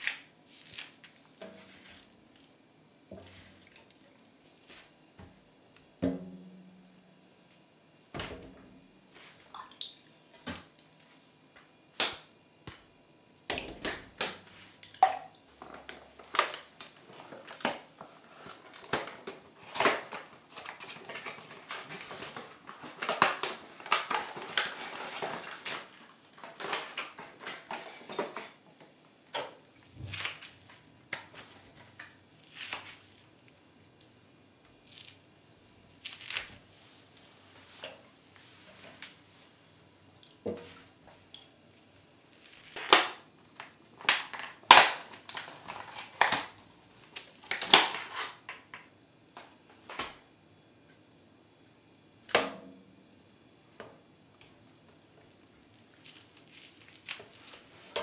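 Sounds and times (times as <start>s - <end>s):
packaging rustling: 15.7s - 28.6s, 42.4s - 48.5s.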